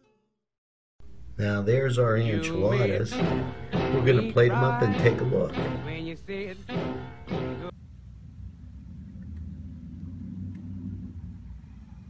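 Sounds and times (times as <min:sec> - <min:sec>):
low steady rumble: 0:01.0 - 0:12.0
guitar music: 0:02.0 - 0:07.7.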